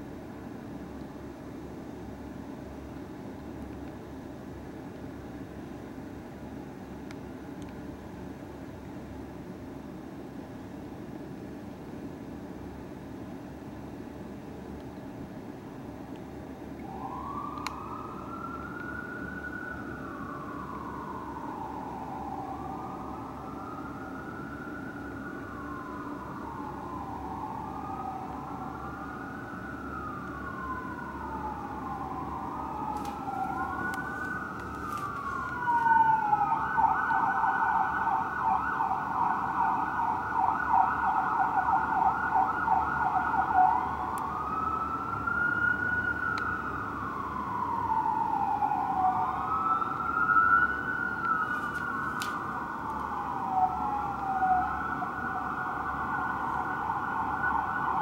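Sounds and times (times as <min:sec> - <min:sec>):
fire engine sirens wailing: 0:16.3 - 0:58.0
siren fast yelp: 0:26.5 - 0:58.0.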